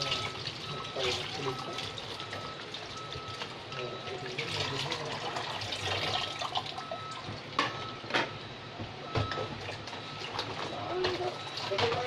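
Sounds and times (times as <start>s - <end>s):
tap water running into sink: 0.0s - 3.5s, 4.1s - 7.2s.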